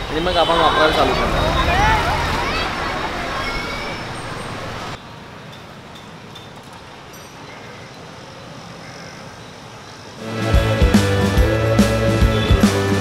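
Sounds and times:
distant traffic hum: 0.0 - 13.0
background music with a beat: 10.2 - 13.0.

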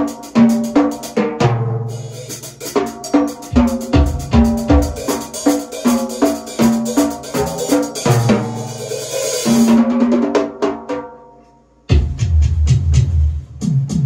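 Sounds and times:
tom and bass drum hits: 2.8 - 5.3, 11.9 - 14.0.

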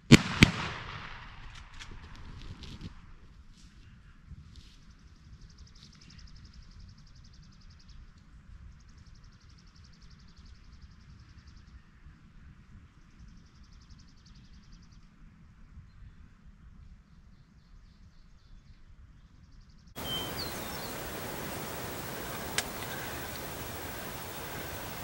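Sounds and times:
songbird trilling: 20.0 - 25.0.

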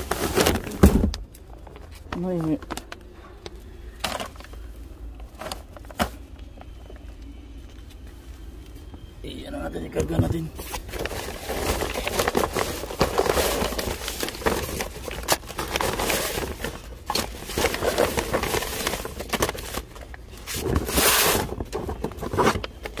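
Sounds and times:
shopping bag rustling: 0.0 - 3.2, 10.1 - 23.0.

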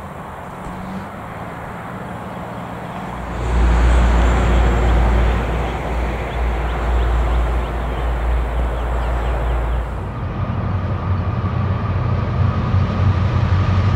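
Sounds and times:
diesel locomotive engine rumble: 0.0 - 13.9.

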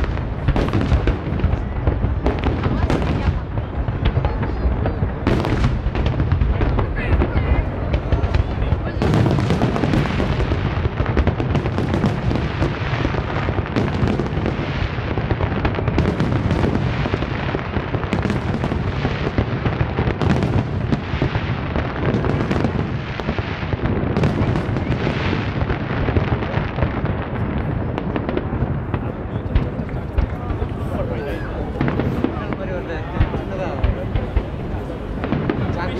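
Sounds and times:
fireworks booming: 0.0 - 35.9
sharp firework cracks: 0.0 - 35.9.

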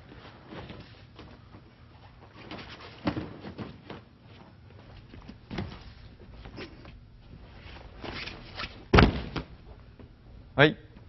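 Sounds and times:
thuds and scuffs on mat: 2.4 - 6.6, 7.6 - 9.6.

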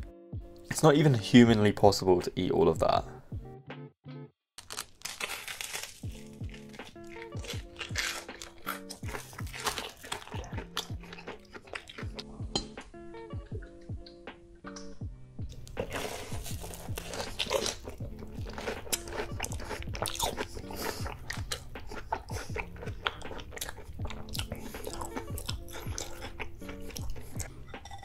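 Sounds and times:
background music: 0.0 - 28.0
crisp crust crackling: 4.6 - 12.2, 15.5 - 27.4
crunching and chewing: 4.6 - 12.3, 15.5 - 27.6.

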